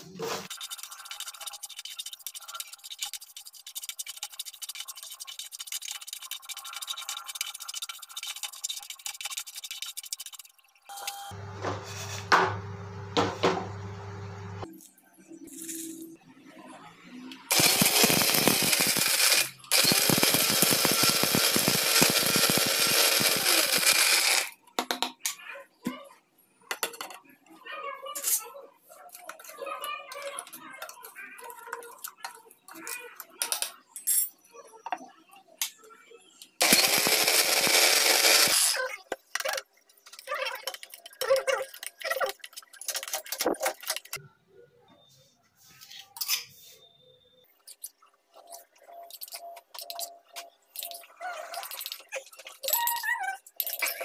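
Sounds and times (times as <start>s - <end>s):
mixer grinder running: 17.5s - 24.5s, 36.6s - 38.7s.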